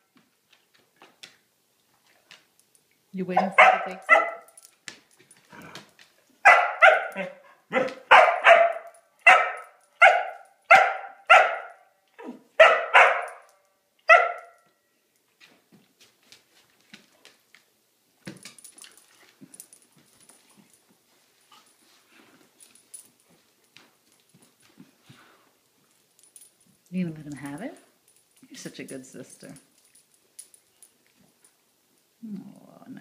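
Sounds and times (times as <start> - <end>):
light clicks and scuffling: 0.1 - 6.4, 14.4 - 31.6
dog barking: 3.4 - 4.5, 6.4 - 13.5, 14.1 - 14.6.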